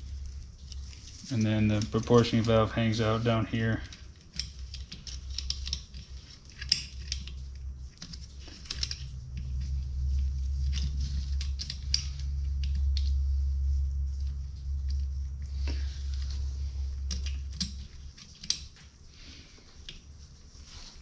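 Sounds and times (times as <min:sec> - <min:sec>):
steady low hum: 0:00.0 - 0:21.0
small metal parts clicking: 0:00.6 - 0:03.1, 0:03.7 - 0:13.2, 0:15.6 - 0:18.9.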